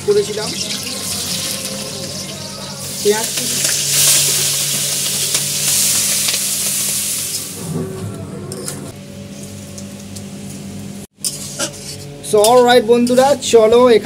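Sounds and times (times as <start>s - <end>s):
chicken sizzling in oil: 0.0s - 7.6s.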